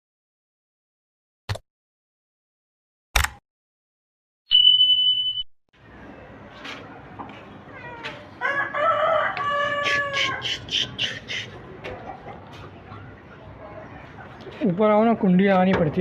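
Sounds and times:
electronic beep: 4.5s - 5.5s
rooster crowing: 8.4s - 10.6s.

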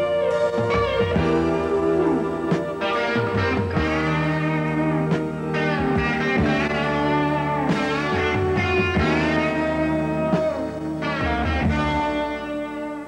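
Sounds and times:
guitar-led instrumental music: 0.0s - 13.0s.

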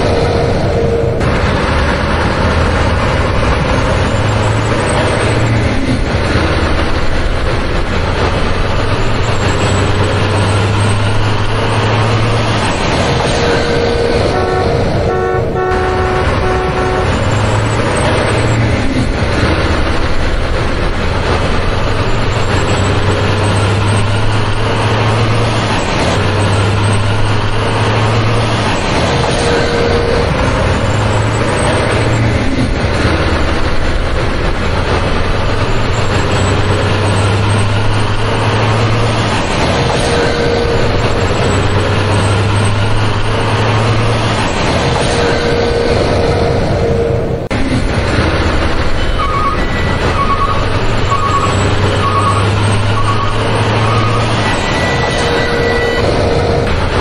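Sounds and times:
truck horn toots: 0.0s - 5.5s, 13.3s - 18.7s, 29.3s - 32.3s, 39.9s - 42.4s, 45.0s - 47.5s, 48.2s - 57.0s
heavy truck engine rumble: 0.0s - 57.0s.

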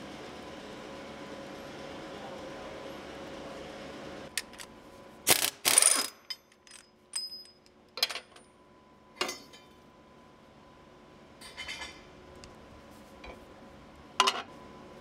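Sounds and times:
light metal clinks: 6.3s - 7.7s.

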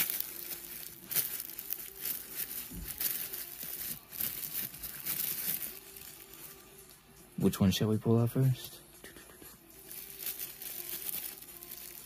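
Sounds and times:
plastic wrapping crinkling: 0.0s - 7.0s, 9.8s - 12.0s.

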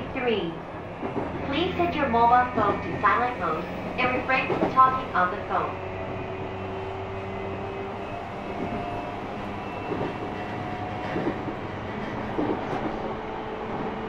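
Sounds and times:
train rolling noise: 0.0s - 14.0s
train motor whine: 2.8s - 14.0s.

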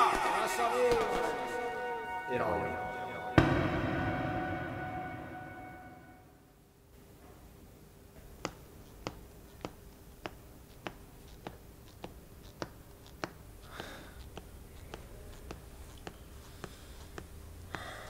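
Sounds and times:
faint irregular clicks: 8.3s - 18.0s.

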